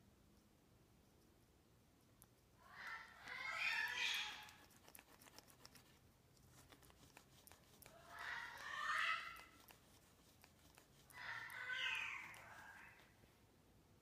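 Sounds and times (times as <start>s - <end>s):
parrot warbling: 2.6s - 4.6s, 7.8s - 9.7s, 11.1s - 13.1s.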